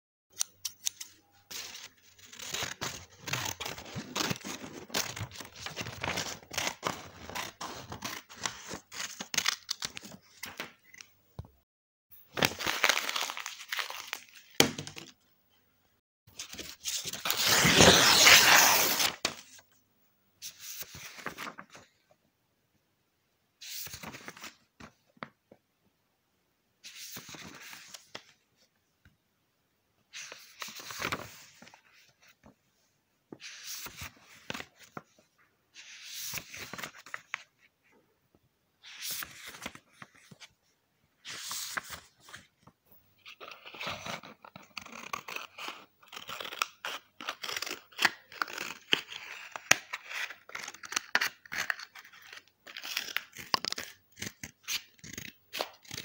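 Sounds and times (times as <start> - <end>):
crackling paper: 0.7 - 11.1, 12.3 - 15.0, 16.3 - 19.6, 20.8 - 21.8
paper tearing and rustling: 0.8 - 10.5, 12.3 - 14.8, 16.4 - 19.5.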